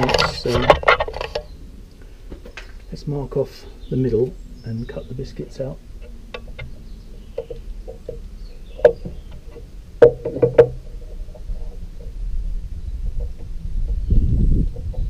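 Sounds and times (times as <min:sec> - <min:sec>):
wooden blocks knocking on bench: 0:10.0 - 0:10.8.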